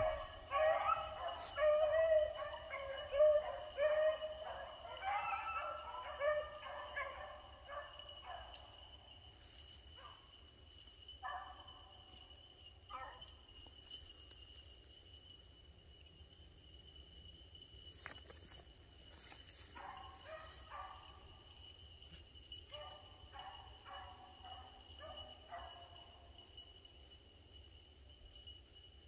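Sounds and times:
hounds baying: 0.0s - 8.9s, 11.2s - 12.0s, 12.9s - 13.4s, 19.1s - 21.4s, 22.7s - 26.3s
high insect drone: 0.0s - 29.0s.

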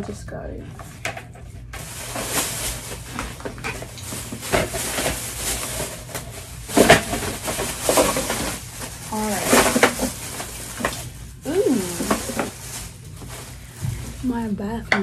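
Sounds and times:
rustling of items handled: 0.7s - 15.0s.

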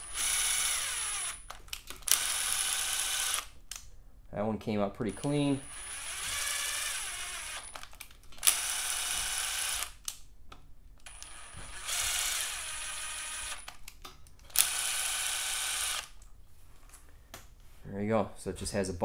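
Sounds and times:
impact driver motor whirring: 0.0s - 1.4s, 2.1s - 3.5s, 5.7s - 7.8s, 8.4s - 10.0s, 11.1s - 13.6s, 14.5s - 16.1s.

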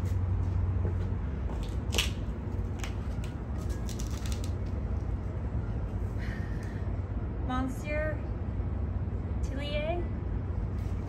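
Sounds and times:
low background rumble: 0.0s - 11.0s
rose bush crackling and rustling: 2.8s - 5.1s.

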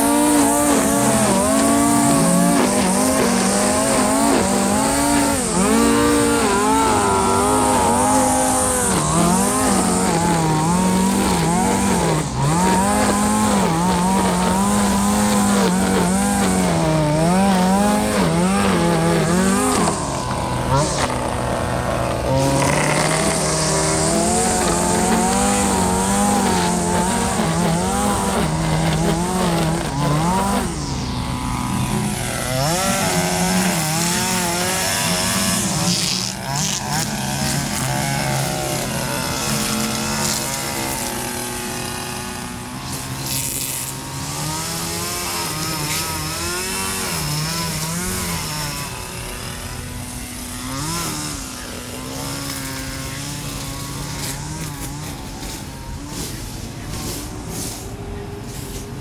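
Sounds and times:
string trimmer engine running: 0.0s - 59.0s
trimmer line hissing: 0.0s - 59.0s.

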